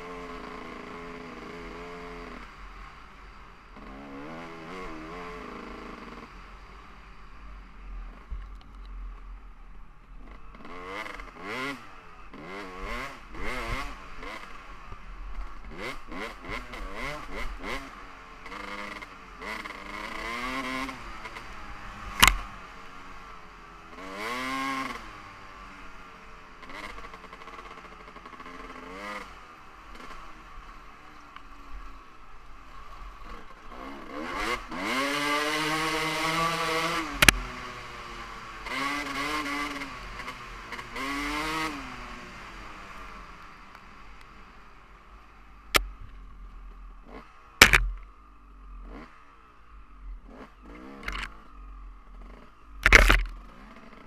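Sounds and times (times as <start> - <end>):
motorcycle engine revving: 0.0 - 7.0, 10.1 - 54.0
sharp loud knocks: 47.6 - 48.0.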